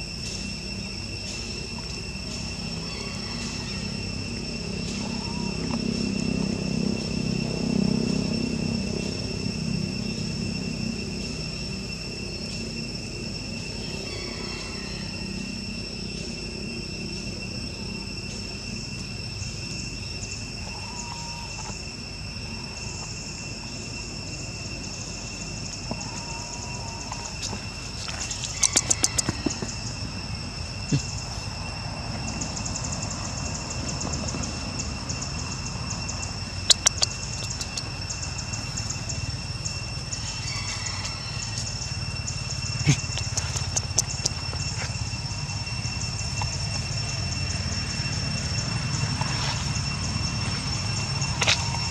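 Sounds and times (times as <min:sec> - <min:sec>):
insects chorus: 0:00.0 - 0:51.9
sharp clicks: 0:28.4 - 0:29.4, 0:36.7 - 0:38.0, 0:43.0 - 0:44.4.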